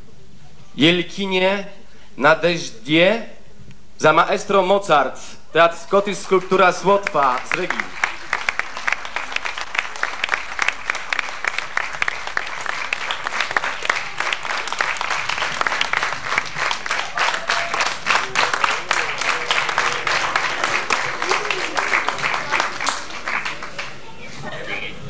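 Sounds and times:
audience applauding: 0:06.0 - 0:24.9
faint voices: 0:17.0 - 0:25.0.

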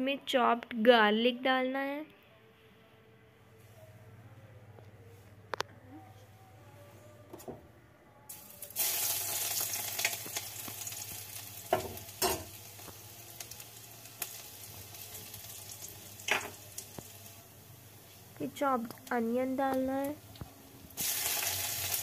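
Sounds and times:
garlic sizzling in hot oil: 0:08.3 - 0:18.6, 0:19.4 - 0:22.0.

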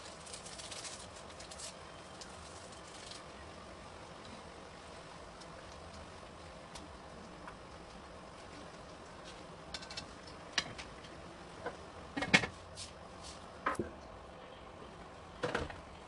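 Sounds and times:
sauce simmering with faint hiss: 0:01.1 - 0:12.0.

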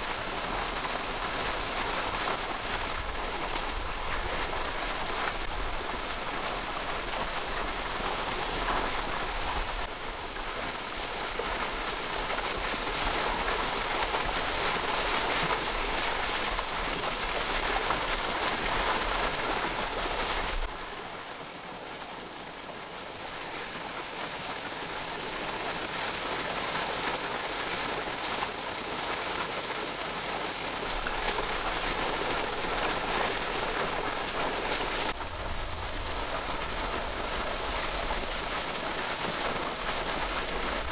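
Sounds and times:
rain falling: 0:00.0 - 0:40.9.

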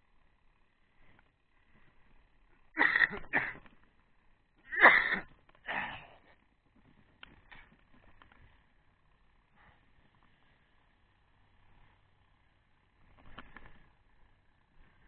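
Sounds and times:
person coughing: 0:02.8 - 0:03.7, 0:04.7 - 0:06.1.

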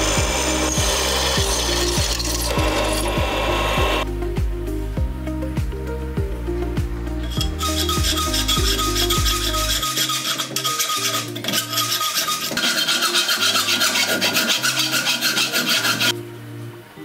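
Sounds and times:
file rasping on steel: 0:00.0 - 0:03.8, 0:07.4 - 0:16.1
background music: 0:00.0 - 0:17.0.

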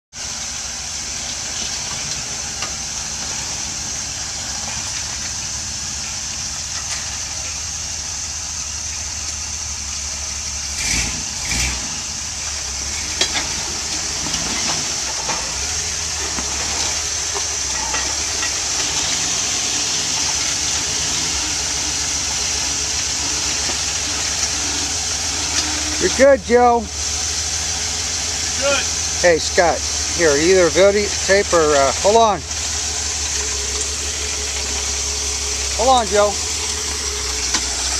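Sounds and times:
engine running at low speed: 0:00.1 - 0:37.9
steady high hiss: 0:11.3 - 0:37.9.

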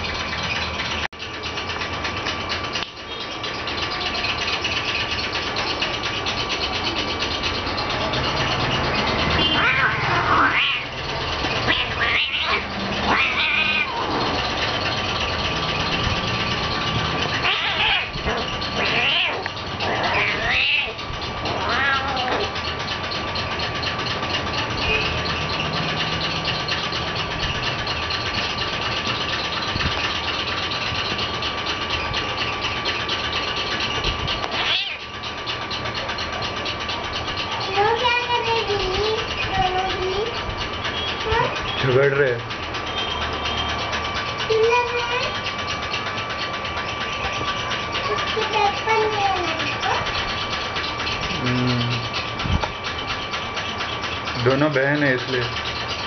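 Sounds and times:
steady background hum: 0:00.0 - 0:56.0
kittens meowing: 0:09.4 - 0:14.2, 0:17.4 - 0:22.6, 0:34.4 - 0:35.1.

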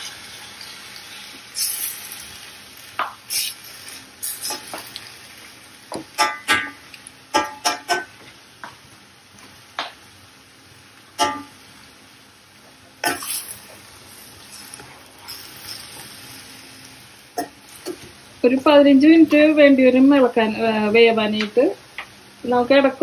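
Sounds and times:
faint sizzle: 0:00.0 - 0:23.0
spoon scraping and clinking in pan: 0:14.5 - 0:16.1.

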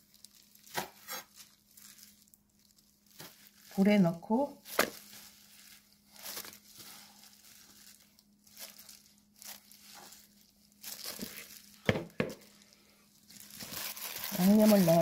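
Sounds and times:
plastic glove crinkling: 0:00.0 - 0:15.0
soft rustles in plastic bowl: 0:00.0 - 0:15.0.

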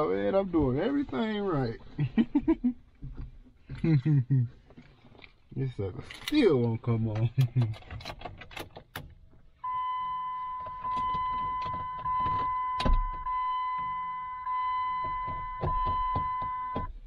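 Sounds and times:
hands clicking and knocking in dash: 0:02.4 - 0:04.0, 0:06.6 - 0:09.5, 0:14.9 - 0:17.0
dashboard warning chime: 0:09.6 - 0:17.0.

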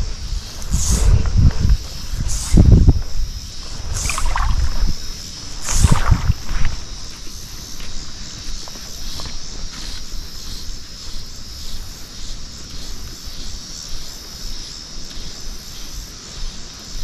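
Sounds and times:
low rumble on microphone: 0:00.0 - 0:07.2
insects droning: 0:00.0 - 0:17.0.

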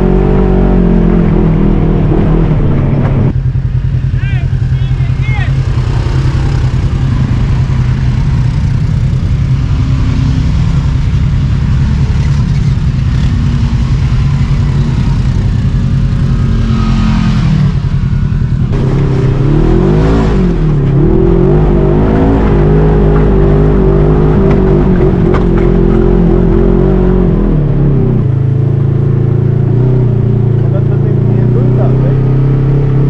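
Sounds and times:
off-road vehicle engine revving: 0:00.0 - 0:33.0.

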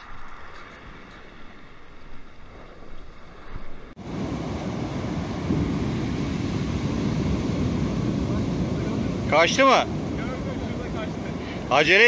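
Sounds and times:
wind on microphone: 0:00.0 - 0:12.0
waves washing on shore: 0:02.6 - 0:12.0.

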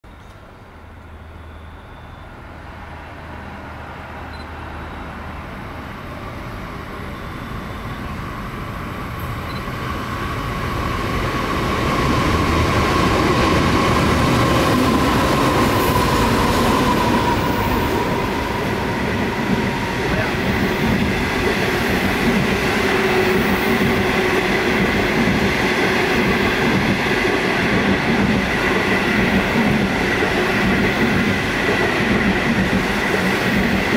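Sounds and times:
train rumble: 0:02.5 - 0:33.9
train wheel noise: 0:07.1 - 0:33.9.

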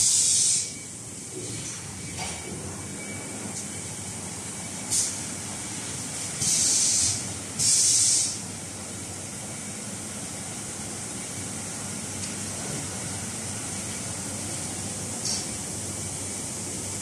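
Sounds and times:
compressed air hiss: 0:00.0 - 0:00.7, 0:06.4 - 0:08.4
packaging machinery hum: 0:00.0 - 0:17.0.

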